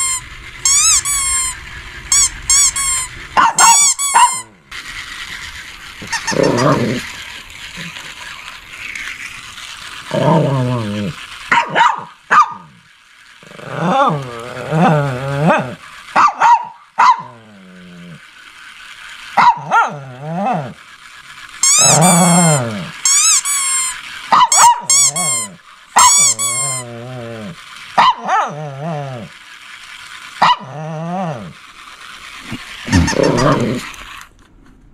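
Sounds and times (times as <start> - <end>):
dog whining yips: 0.0 - 4.5, 6.0 - 6.8, 21.6 - 26.9, 32.9 - 33.8
dog barking and growling: 3.4 - 4.6, 6.0 - 8.2, 10.1 - 12.8, 13.4 - 18.2, 19.3 - 20.8, 21.6 - 23.3, 24.3 - 29.3, 30.4 - 31.6, 32.4 - 34.0.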